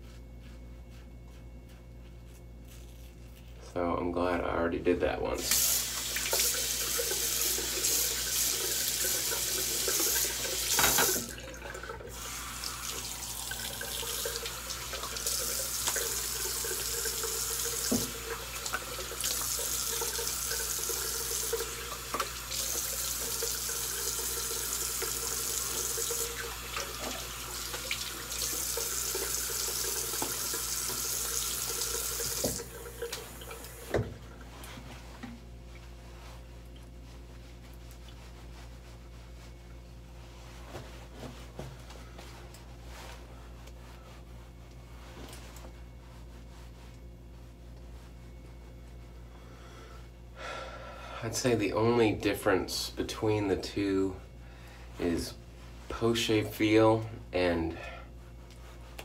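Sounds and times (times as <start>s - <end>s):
tap water running: 5.3s - 35.4s.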